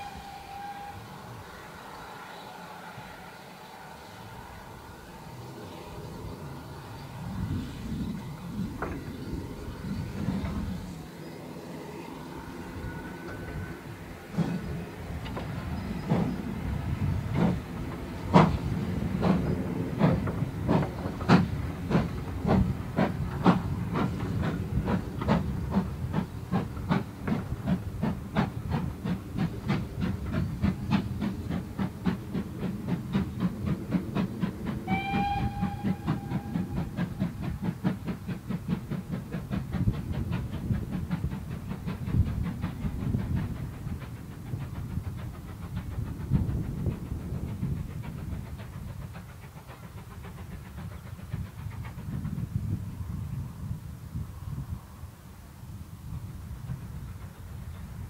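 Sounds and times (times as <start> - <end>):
steam whistle: 0.0 - 1.5, 34.8 - 37.1
steam locomotive beat: 0.0 - 54.8, 55.9 - 58.0
train wheels clacking on rail joints: 7.3 - 11.4, 12.3 - 53.5, 56.3 - 58.0.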